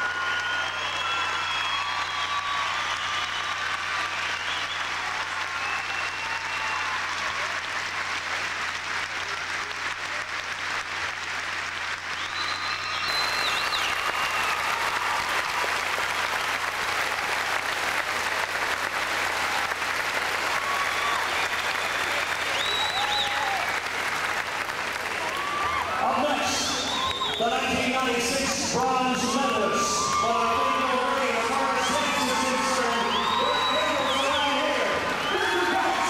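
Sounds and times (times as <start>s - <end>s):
audience applauding: 0.0s - 36.0s.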